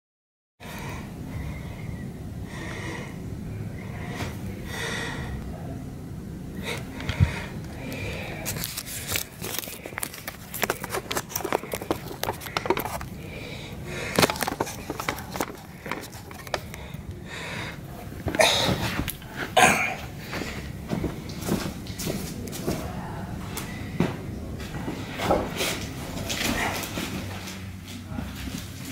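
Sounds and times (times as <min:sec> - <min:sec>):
breathy puffs: 0:06.6 - 0:21.3
handling clicks and knocks: 0:09.4 - 0:13.1, 0:14.1 - 0:16.8.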